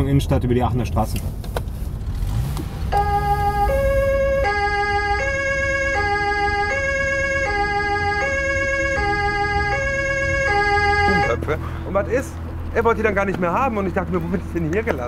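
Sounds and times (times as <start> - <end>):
car engine accelerating: 0.9 - 15.0
two-tone police siren: 2.9 - 11.4.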